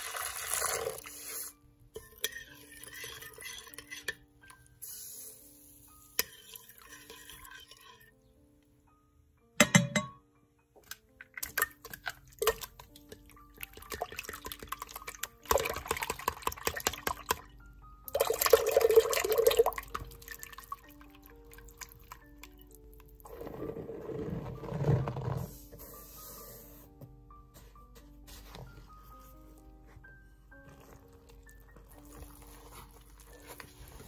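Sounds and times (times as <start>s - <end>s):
soft background music: 0.0s - 34.0s
whisk beating liquid in bowl: 13.7s - 17.4s.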